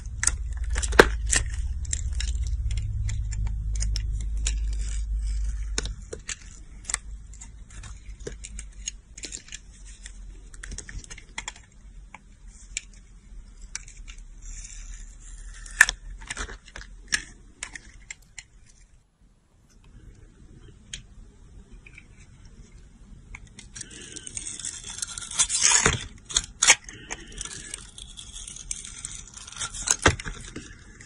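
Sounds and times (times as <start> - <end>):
low rumble: 0.0 - 8.1
blade carving soap: 0.0 - 9.4, 13.6 - 16.4, 23.7 - 31.0.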